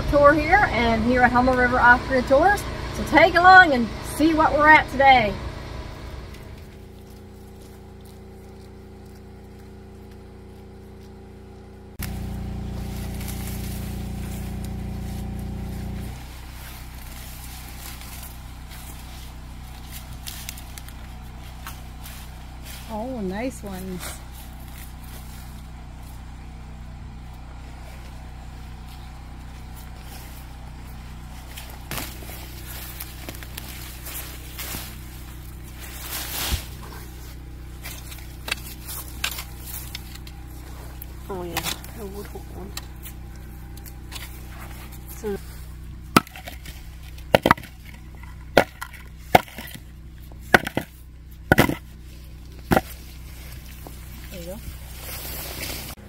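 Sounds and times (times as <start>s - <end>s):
low engine hum: 0.0s - 56.0s.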